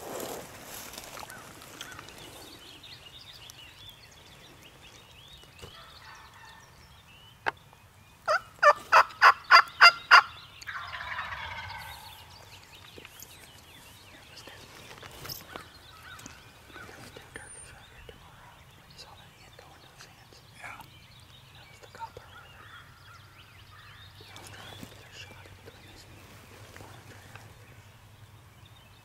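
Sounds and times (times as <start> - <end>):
turkey yelping: 8.3 - 11.9
turkey gobbling: 8.3 - 12.1.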